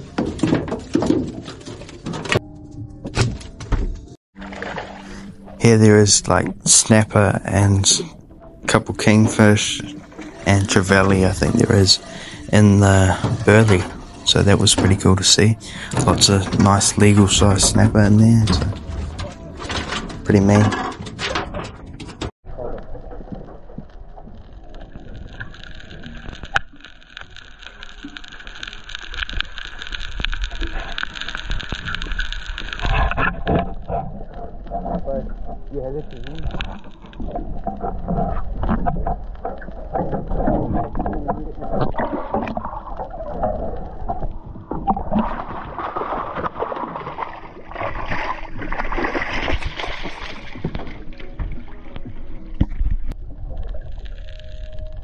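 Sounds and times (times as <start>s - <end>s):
fish splashing at surface: 4.4s - 5.6s, 44.7s - 51.4s
muffled underwater water wash: 4.4s - 20.7s, 22.5s - 55.0s
crackle of fine clicks: 21.4s - 55.0s.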